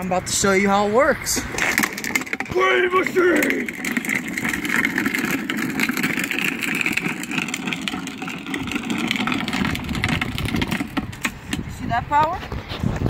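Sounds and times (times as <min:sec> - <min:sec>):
plastic wheels grinding on asphalt: 0:00.3 - 0:13.0
small clicks and rattles: 0:01.6 - 0:11.7.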